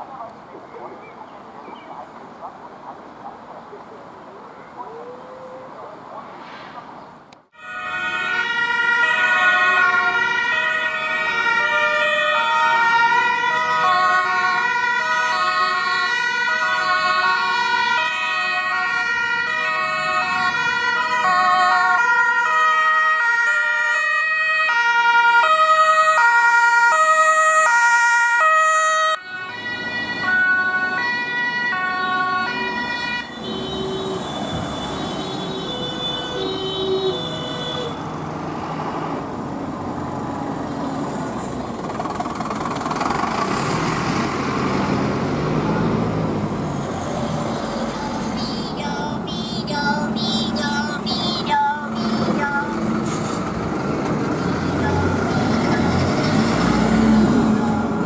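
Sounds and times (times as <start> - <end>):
engine and road noise: 0.0 - 58.0
two-tone emergency sirens: 7.5 - 38.1, 47.3 - 58.0.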